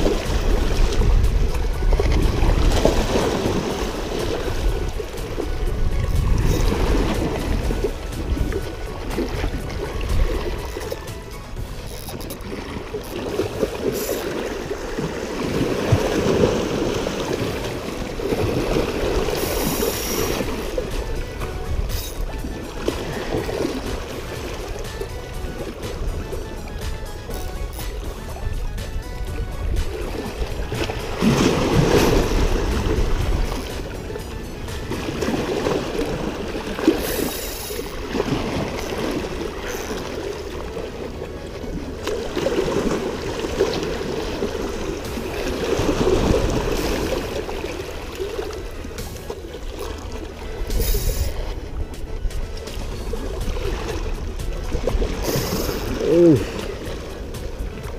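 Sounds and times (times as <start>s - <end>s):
water rushing: 0.0s - 57.9s
brief high hiss: 50.7s - 51.4s.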